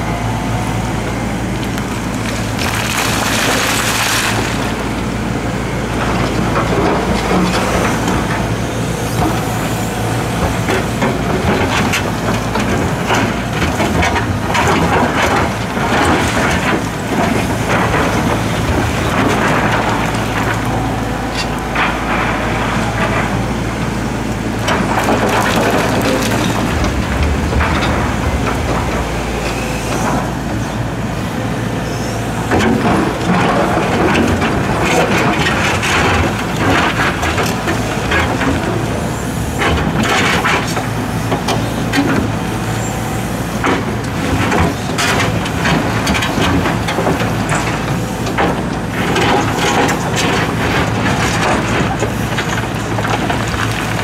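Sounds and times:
excavator diesel engine running: 0:00.0 - 0:54.0
rocks knocking and clattering: 0:24.6 - 0:30.6.

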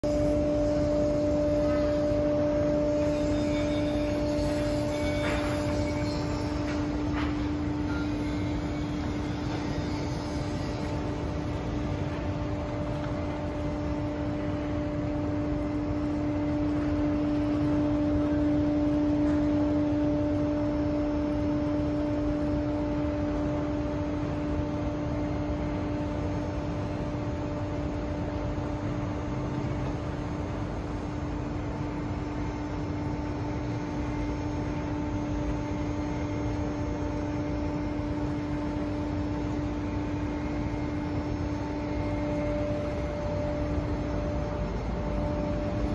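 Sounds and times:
mechanical hum: 0:00.0 - 0:45.9
rushing background noise: 0:00.0 - 0:45.9.

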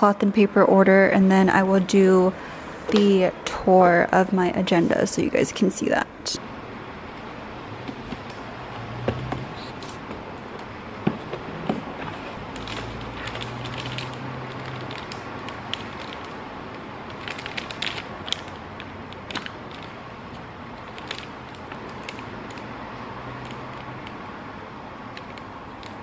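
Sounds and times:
plastic packaging crinkling: 0:11.9 - 0:24.2.

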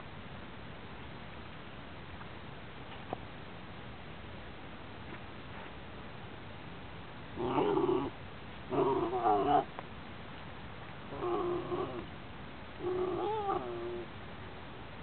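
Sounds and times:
dog yowling: 0:07.4 - 0:08.1, 0:08.7 - 0:09.7, 0:11.1 - 0:12.1, 0:12.8 - 0:14.1.

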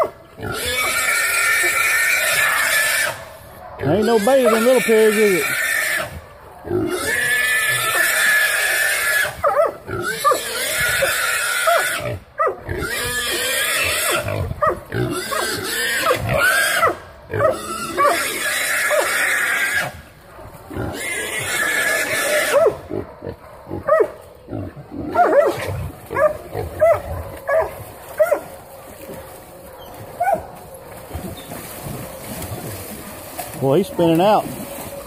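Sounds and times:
young hogs squealing: 0:00.4 - 0:20.1, 0:20.7 - 0:28.5.

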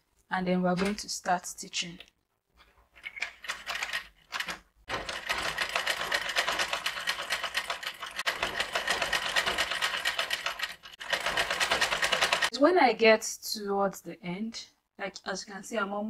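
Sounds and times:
sewing machine stitching: 0:03.2 - 0:12.5.

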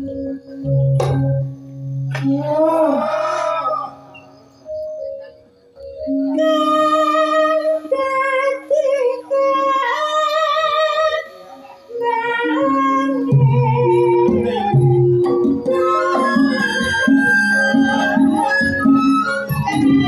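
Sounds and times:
gamelan music: 0:00.0 - 0:08.5, 0:11.4 - 0:20.0
woman singing long notes: 0:02.2 - 0:04.1, 0:06.2 - 0:17.1.

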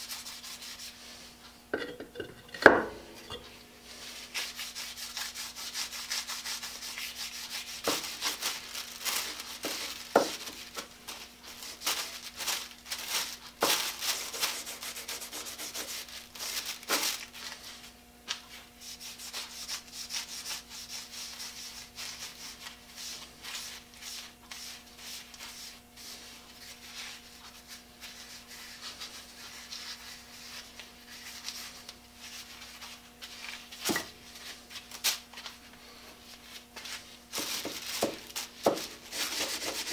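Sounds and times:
hand rubbing wooden handle: 0:01.8 - 0:07.8.

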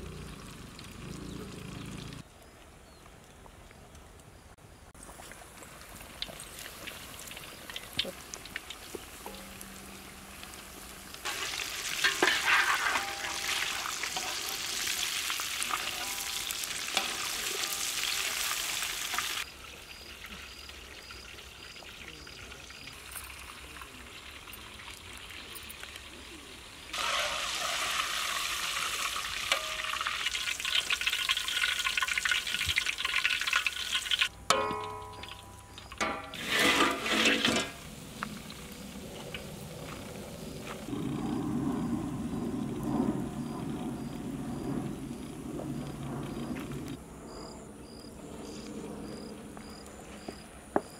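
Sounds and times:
chicken frying in hot oil: 0:00.0 - 0:02.2, 0:05.0 - 0:41.3.

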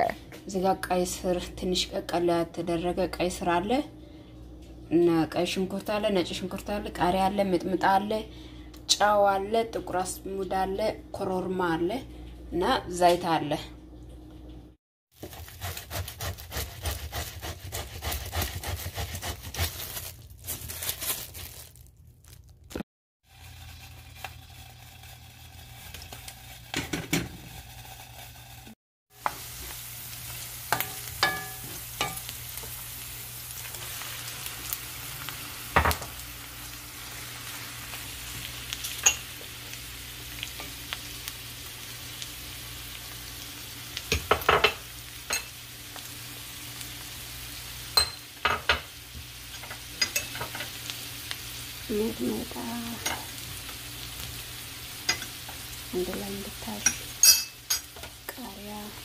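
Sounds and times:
onions and tomato sizzling in pan: 0:23.2 - 0:59.0.

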